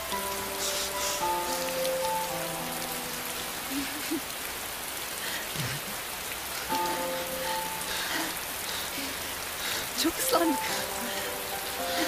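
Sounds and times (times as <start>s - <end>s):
soft background music: 0.0s - 4.1s, 6.7s - 8.7s, 9.9s - 12.0s
heavy rain pouring: 0.0s - 12.0s.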